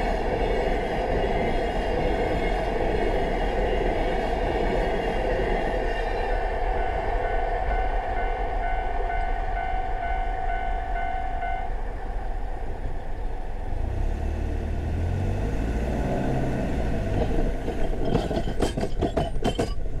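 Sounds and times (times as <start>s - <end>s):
level-crossing alarm dinging: 6.3s - 12.0s
car engine revving: 13.7s - 17.4s
tyres bumping over rails: 16.9s - 20.0s.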